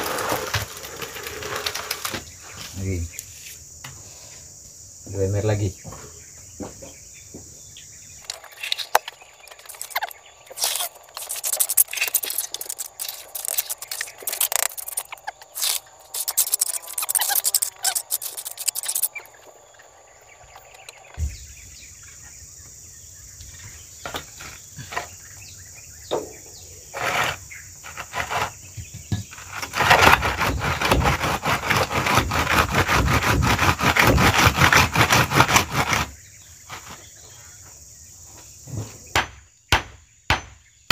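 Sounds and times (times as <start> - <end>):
tool scraping cement mix: 0.0 - 2.9, 8.2 - 19.5, 26.9 - 37.0
high insect drone: 0.0 - 40.0.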